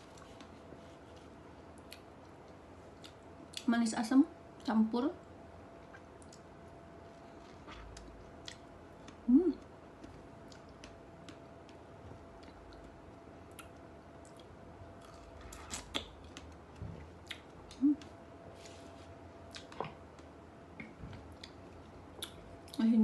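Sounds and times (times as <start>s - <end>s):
person chewing wetly: 5.8s - 6.5s, 7.2s - 18.1s, 19.5s - 22.8s.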